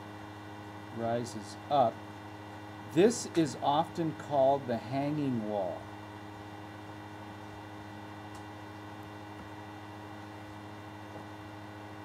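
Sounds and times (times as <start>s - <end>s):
electrical mains hum with hiss: 0.0s - 12.0s.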